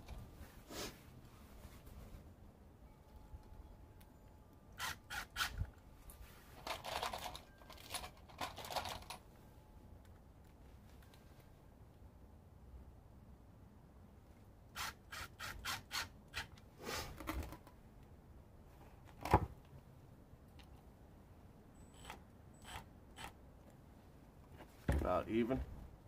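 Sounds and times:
short scrape: 0:00.5 - 0:01.1, 0:16.8 - 0:17.2.

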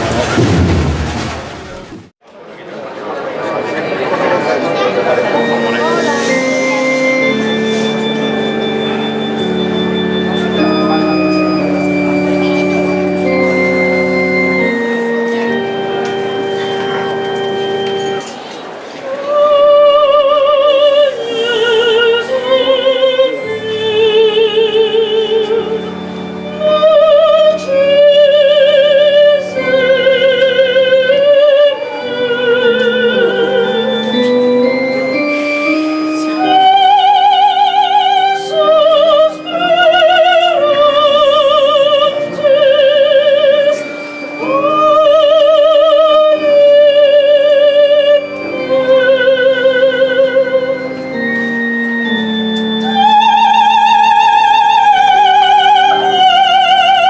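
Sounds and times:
organ chords: 0:03.4 - 0:57.0
soprano singing operatically: 0:19.0 - 0:34.1, 0:35.8 - 0:50.9, 0:52.7 - 0:57.0.

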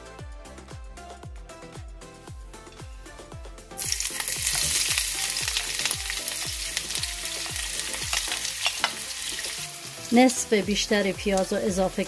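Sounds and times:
onions sizzling in hot oil: 0:03.8 - 0:12.0.

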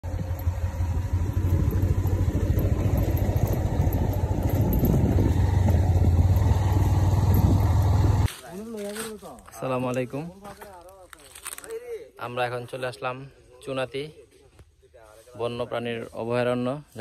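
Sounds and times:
vehicle engine rumbling: 0:00.0 - 0:08.3.

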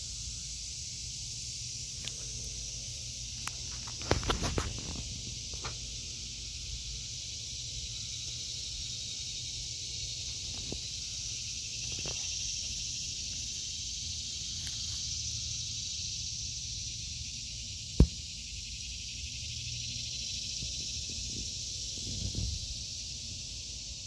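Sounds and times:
cicadas droning: 0:00.0 - 0:24.0
sharp knock: 0:18.0 - 0:18.2.

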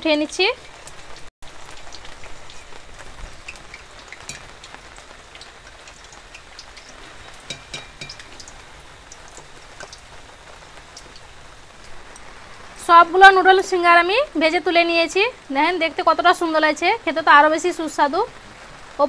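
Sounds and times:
food sizzling in hot oil: 0:00.0 - 0:19.0
oil crackles and pops: 0:00.2 - 0:12.9.

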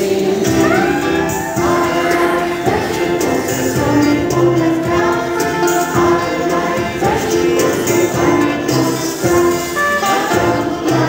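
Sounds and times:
group singing children's song: 0:00.0 - 0:11.0
instrumental backing: 0:00.1 - 0:11.0.

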